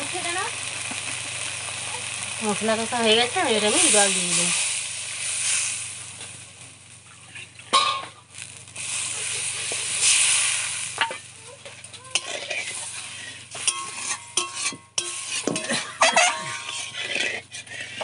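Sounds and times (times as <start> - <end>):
masala sizzling in a wok: 0.0 - 18.0
metal spatula scraping wok: 2.9 - 6.3, 8.8 - 18.0.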